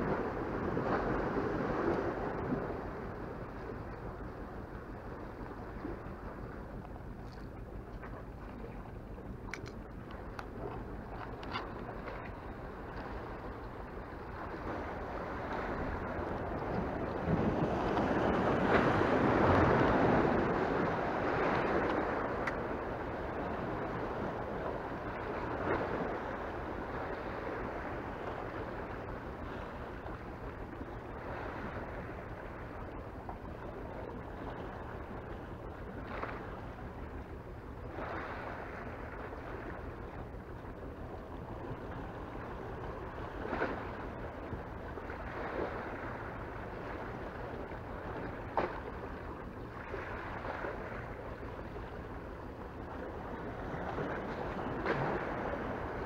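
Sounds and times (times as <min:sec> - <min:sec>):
low hum: 0:00.0 - 0:56.0
sea waves splashing against rocks: 0:14.6 - 0:28.3, 0:53.0 - 0:56.0.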